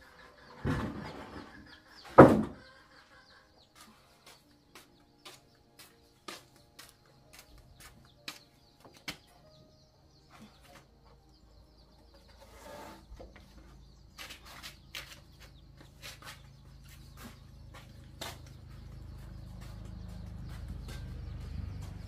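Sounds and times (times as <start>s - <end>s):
plank scraping on concrete: 12.2s - 13.6s.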